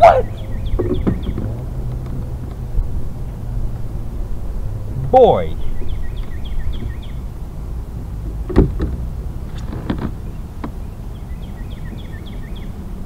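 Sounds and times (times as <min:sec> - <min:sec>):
wind rumble on microphone: 0:00.0 - 0:13.0
knocks and taps on kayak: 0:00.7 - 0:02.6, 0:08.5 - 0:09.0, 0:09.8 - 0:10.8.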